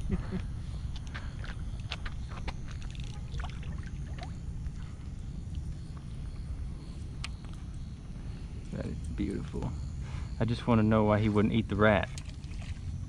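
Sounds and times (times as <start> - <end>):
steady low rumble: 0.0 - 13.0
fish splashing: 2.6 - 4.4.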